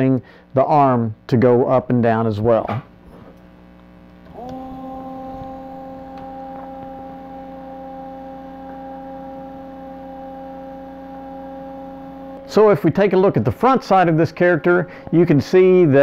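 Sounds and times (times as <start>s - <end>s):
wiper motor humming: 3.5s - 16.0s.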